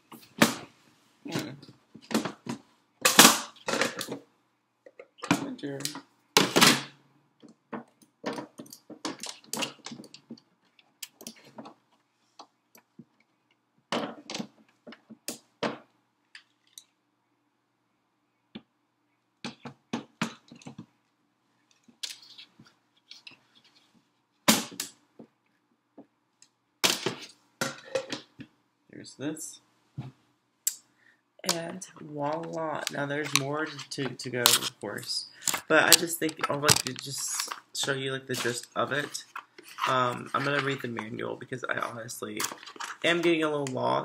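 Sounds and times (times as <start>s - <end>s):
plastic and metal parts clicking: 35.4s - 37.6s, 38.4s - 41.1s.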